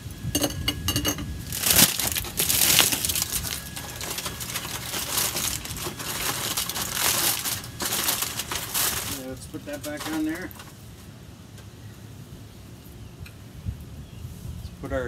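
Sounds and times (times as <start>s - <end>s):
aluminium foil crinkling: 1.1s - 10.9s.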